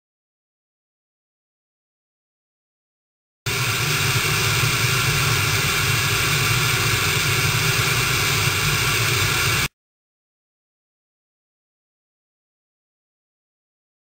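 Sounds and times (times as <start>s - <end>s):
low hum: 3.5s - 9.7s
tv static hiss: 3.5s - 9.7s.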